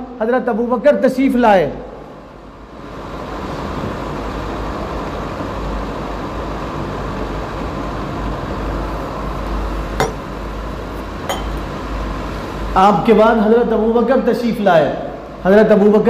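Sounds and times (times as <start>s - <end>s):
low rumble and hiss: 0.0s - 16.0s
sharp clink: 10.0s - 10.3s, 11.3s - 11.6s.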